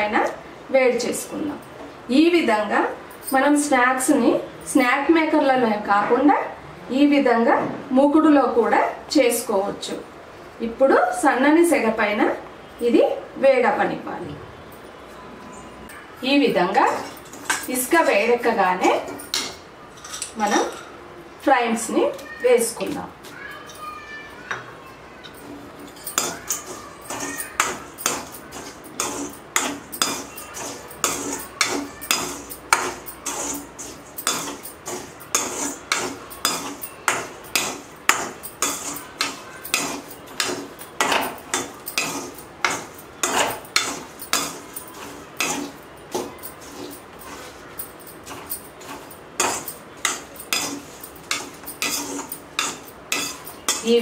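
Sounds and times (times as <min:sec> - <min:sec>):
metal skimmer scraping a metal pan: 0:25.3 - 0:54.0.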